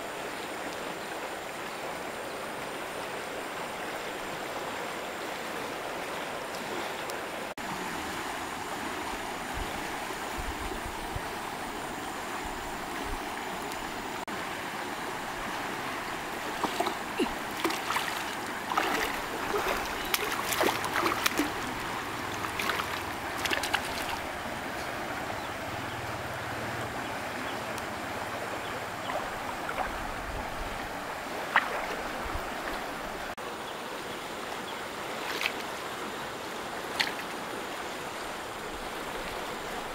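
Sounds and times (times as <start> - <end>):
shallow river flowing: 0.0 - 39.9
fish splashing at the surface: 16.6 - 24.3.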